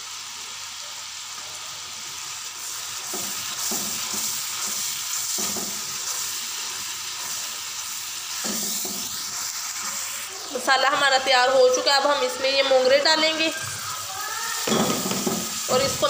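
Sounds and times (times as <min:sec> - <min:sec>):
spices sizzling in hot oil: 0:00.0 - 0:16.0
spatula stirring: 0:02.8 - 0:11.2.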